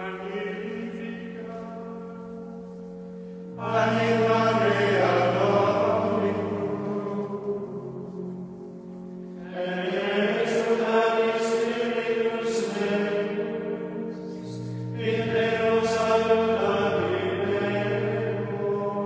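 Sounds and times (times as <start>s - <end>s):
choir chanting: 3.6s - 8.4s, 9.4s - 19.0s.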